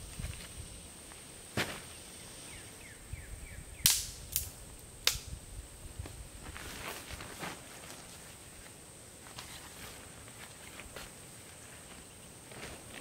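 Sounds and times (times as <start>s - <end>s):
sharp snaps: 3.8s - 5.3s.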